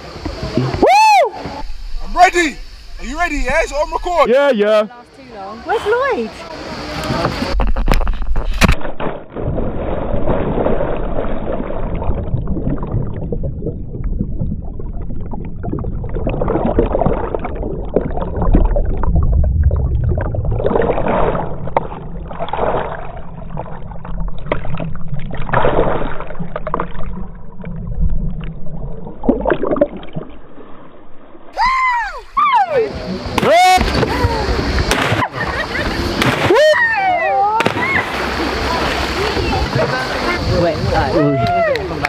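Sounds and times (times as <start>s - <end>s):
underwater rushing and bubbling: 1.4s - 4.3s, 5.9s - 31.6s, 32.2s - 36.2s, 37.8s - 41.3s
splash into water: 7.1s - 13.1s, 20.0s - 27.3s, 33.3s - 41.6s.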